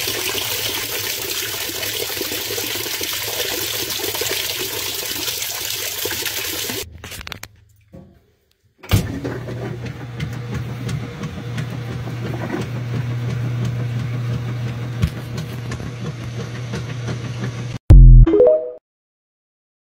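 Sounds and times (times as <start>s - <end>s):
washing machine hum: 0.0s - 6.9s, 8.8s - 17.8s.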